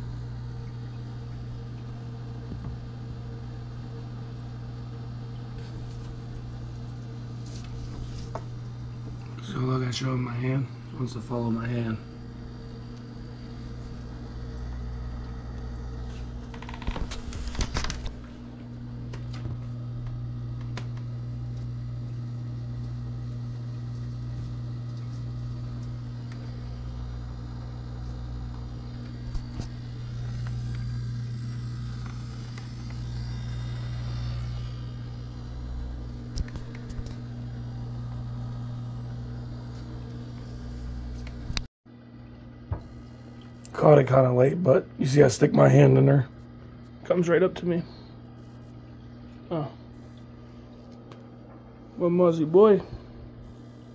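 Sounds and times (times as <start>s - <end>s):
low machine hum: 0.0s - 53.9s.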